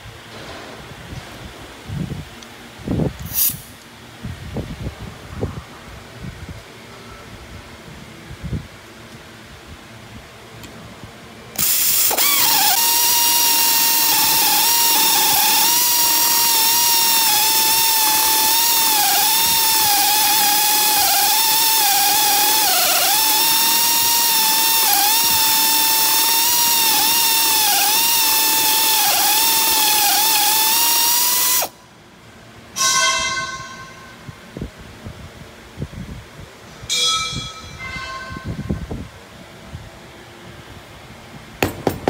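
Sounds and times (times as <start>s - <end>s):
electrode tip dresser motor whirring: 11.6s - 31.7s.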